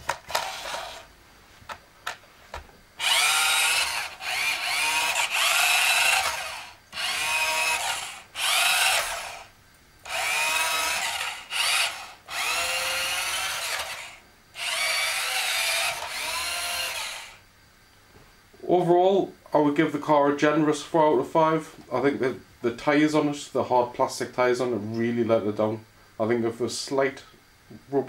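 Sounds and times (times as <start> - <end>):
toy car motor whining: 0.1 - 1.1, 3.0 - 17.4.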